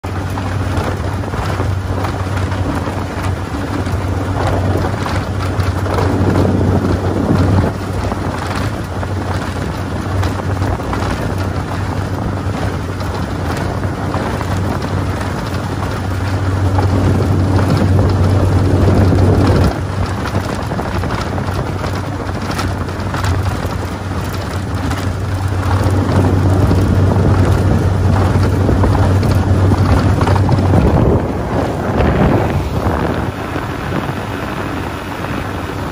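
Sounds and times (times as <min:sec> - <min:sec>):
outboard motor running: 0:00.0 - 0:35.9
water slapping against hull: 0:00.0 - 0:35.9
wind buffeting microphone: 0:00.0 - 0:35.9.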